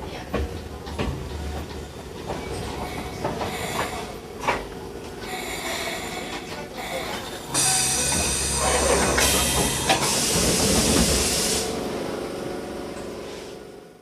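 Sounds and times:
compressed air hiss from train: 0:09.2 - 0:11.8.

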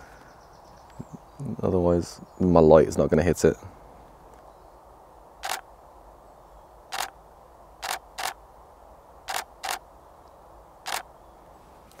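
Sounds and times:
camera shutter clicks: 0:05.4 - 0:05.6, 0:06.9 - 0:07.1, 0:07.8 - 0:08.4, 0:09.3 - 0:09.8, 0:10.9 - 0:11.1.

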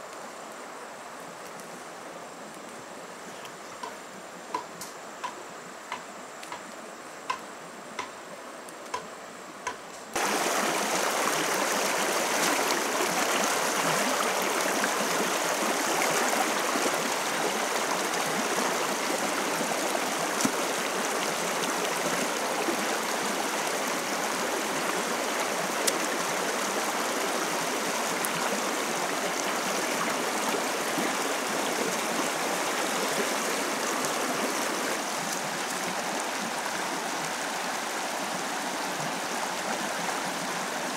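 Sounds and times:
stream water rushing over rocks: 0:10.2 - 0:40.9.

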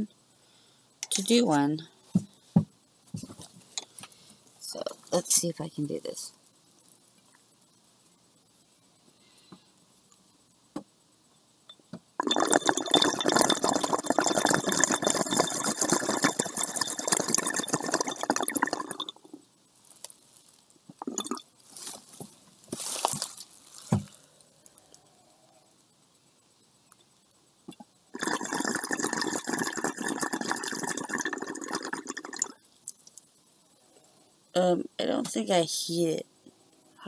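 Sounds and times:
water bubbling in glass pipe: 0:12.2 - 0:19.4, 0:20.9 - 0:21.5, 0:27.7 - 0:32.6.

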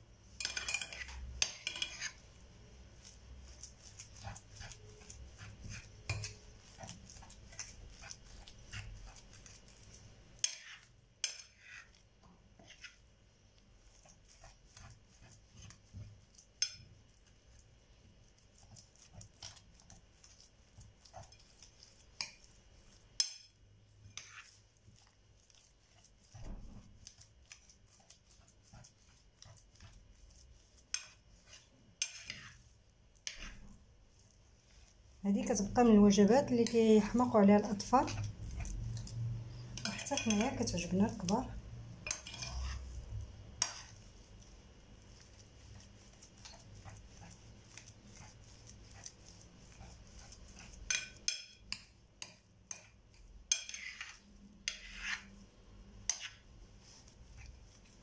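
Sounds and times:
fork scraping and tapping ceramic dish: 0:00.4 - 0:02.2, 0:03.0 - 0:12.0, 0:12.6 - 0:13.0, 0:14.0 - 0:17.3, 0:21.0 - 0:25.6, 0:30.8 - 0:32.6, 0:33.2 - 0:33.7, 0:38.1 - 0:41.4, 0:42.0 - 0:43.0, 0:43.6 - 0:44.0, 0:49.0 - 0:55.3, 0:56.0 - 0:56.4.

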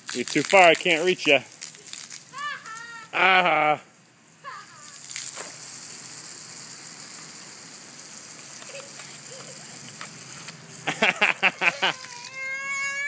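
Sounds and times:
garden hose spraying water: 0:00.0 - 0:13.0
young child squealing: 0:02.3 - 0:03.2, 0:04.4 - 0:05.0, 0:11.4 - 0:13.0.

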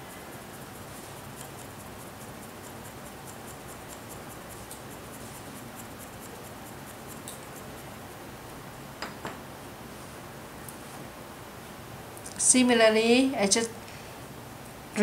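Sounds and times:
low room hiss: 0:00.0 - 0:15.0
paper ticking on quilling tool: 0:00.4 - 0:07.8.

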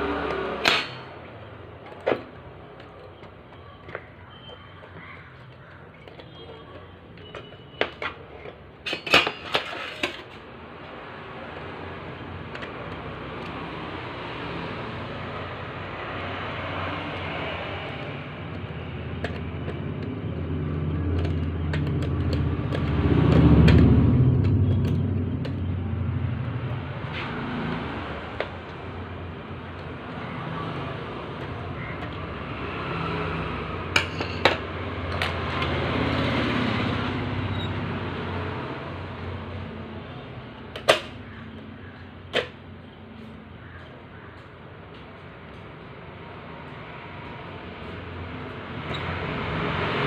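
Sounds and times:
sharp clicks and metallic clinks: 0:16.1 - 0:27.2, 0:27.8 - 0:36.4.

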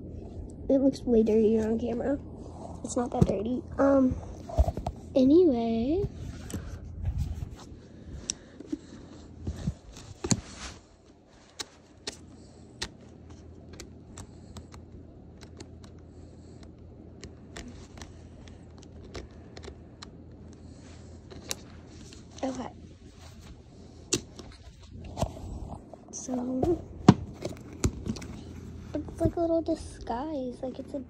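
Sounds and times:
faint rustling: 0:01.0 - 0:14.8.

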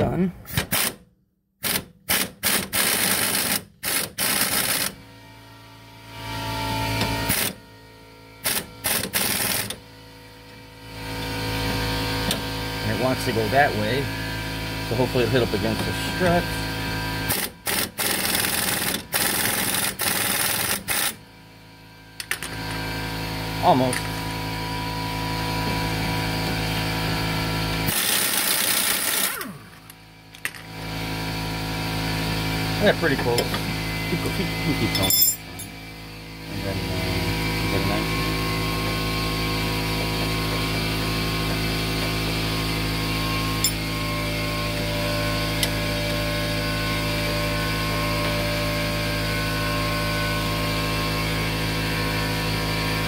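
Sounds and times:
impact wrench motor whirring: 0:00.5 - 0:01.0, 0:01.6 - 0:05.0, 0:06.9 - 0:07.6, 0:08.4 - 0:09.8, 0:15.4 - 0:21.2, 0:23.7 - 0:32.6
steady machine hum: 0:04.2 - 0:53.0
impact wrench hammering: 0:17.3 - 0:21.2.

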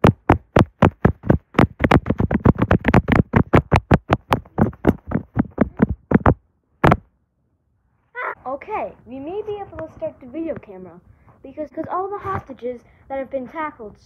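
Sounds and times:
rapid sharp knocks: 0:00.0 - 0:07.1.

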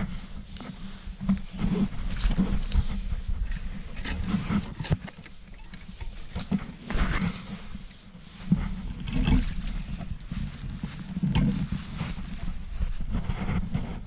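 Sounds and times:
dry leaves crackling and rustling: 0:08.3 - 0:13.2.

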